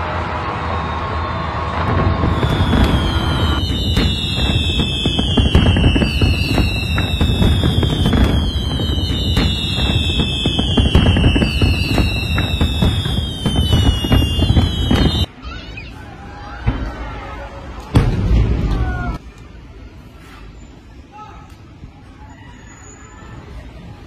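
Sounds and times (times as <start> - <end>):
fireworks bangs and crackling: 0.0 - 15.3, 17.9 - 19.3
falling firework whistles: 0.2 - 15.3.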